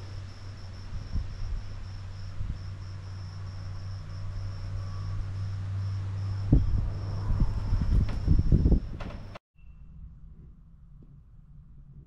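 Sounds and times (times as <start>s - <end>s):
insects trilling: 0.0s - 8.8s
low hum: 0.0s - 12.0s.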